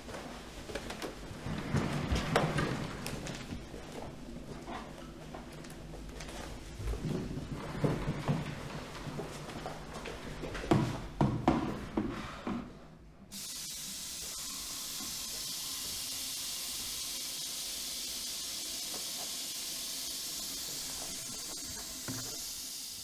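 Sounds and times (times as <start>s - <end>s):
tap water running into sink: 13.3s - 23.0s.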